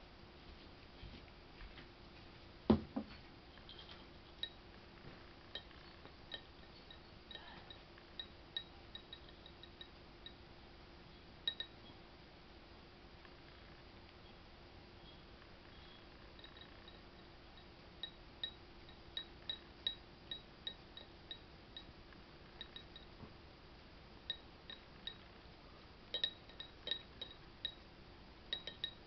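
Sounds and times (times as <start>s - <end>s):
ceramic bowl clinking: 5.5s - 10.0s, 26.1s - 27.8s, 28.5s - 29.0s.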